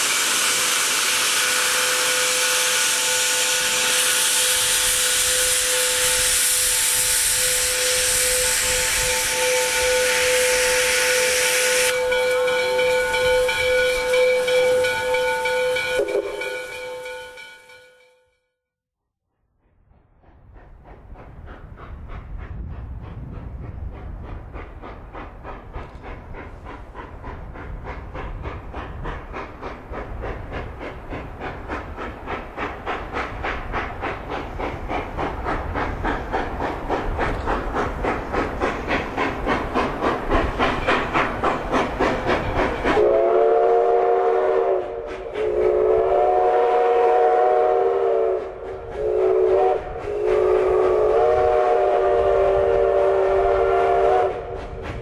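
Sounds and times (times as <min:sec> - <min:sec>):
steam locomotive exhaust chuffs: 0:00.0 - 0:17.8, 0:19.4 - 0:55.0
chime steam whistle: 0:00.0 - 0:18.3, 0:42.9 - 0:54.6.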